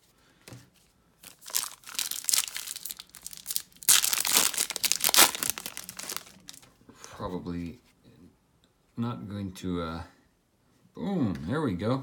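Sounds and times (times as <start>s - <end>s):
foil wrapper tearing and crinkling: 1.2s - 6.7s.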